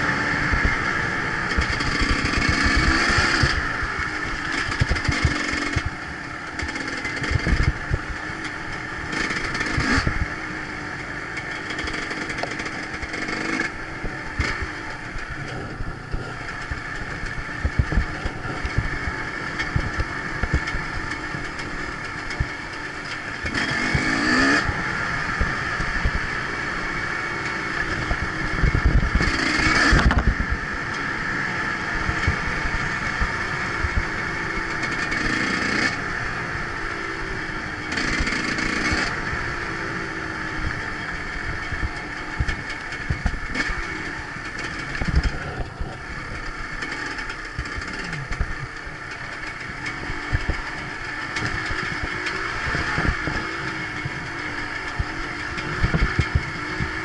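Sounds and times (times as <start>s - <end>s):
motorcycle engine revving: 0.0s - 57.0s
low knocks of bike on track: 27.9s - 30.6s.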